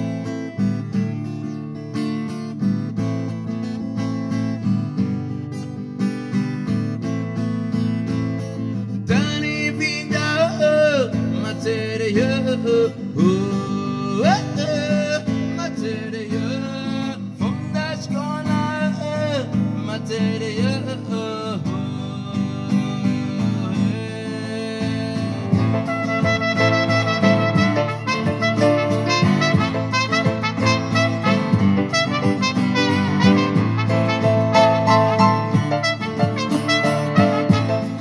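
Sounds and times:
acoustic guitar strumming: 0.0 - 38.0
man singing: 9.0 - 38.0.

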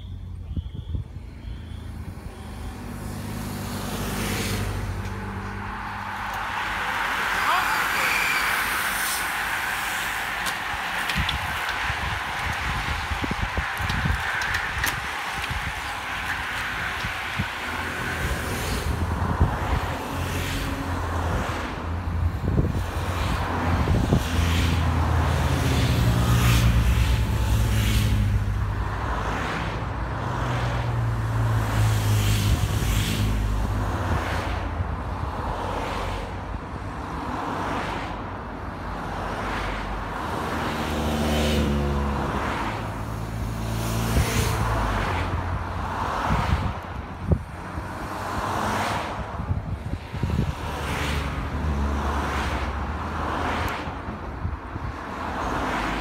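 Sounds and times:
cars passing close by: 0.0 - 56.0.

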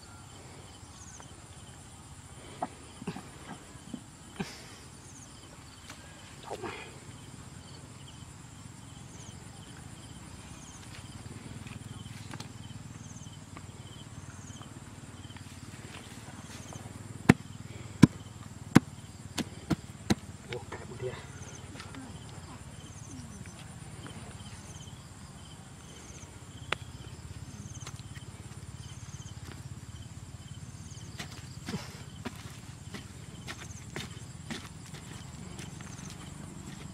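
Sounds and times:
insects buzzing: 0.0 - 36.9.

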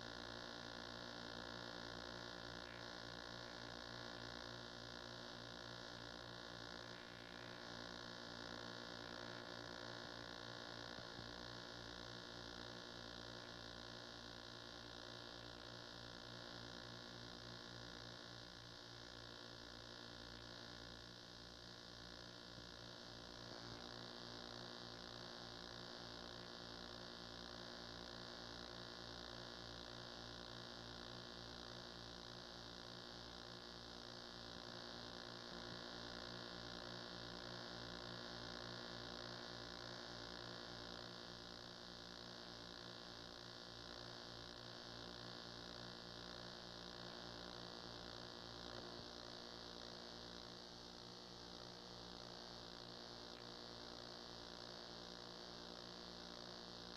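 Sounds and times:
tape hiss: 0.0 - 19.5, 38.6 - 56.9
mains hum: 0.0 - 56.9.

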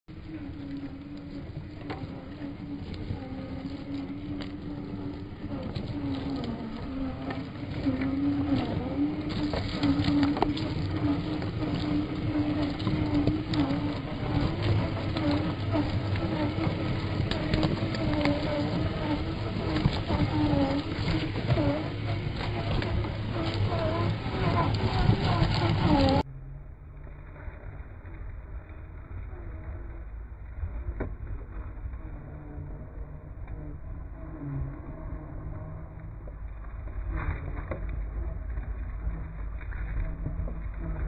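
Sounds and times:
electric motor whining: 0.1 - 26.2
tyres crackling over twigs: 0.1 - 26.2.

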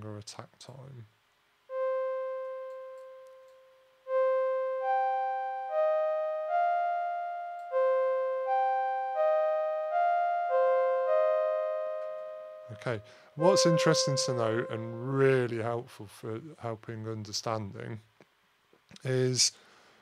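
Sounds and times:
synth strings melody: 1.7 - 15.7.

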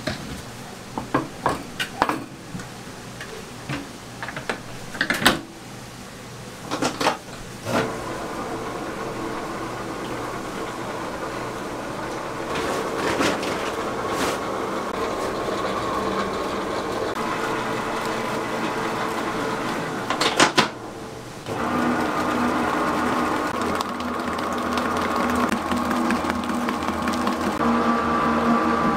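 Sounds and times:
stand mixer whisking batter: 7.8 - 20.4, 21.4 - 28.9.

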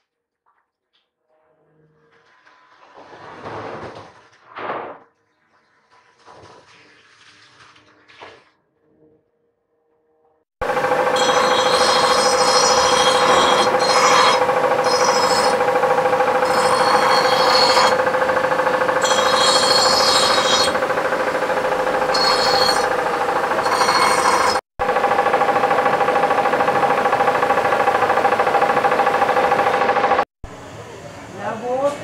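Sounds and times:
steady machine hum: 10.6 - 32.0.

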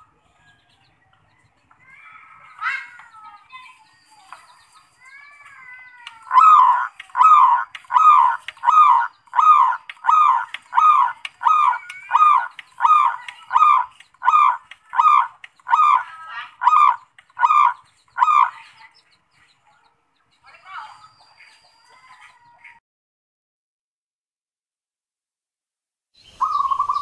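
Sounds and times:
dove cooing: 6.3 - 18.6.

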